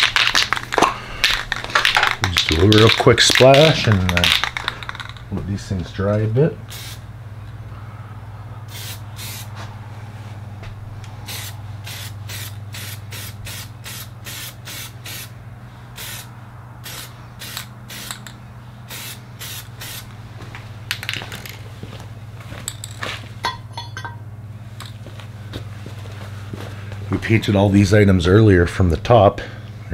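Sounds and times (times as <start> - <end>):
low hum: 0.0 - 28.4
spray paint can hissing: 6.7 - 7.0, 8.7 - 9.5, 11.3 - 15.3, 16.0 - 18.3, 18.9 - 20.1.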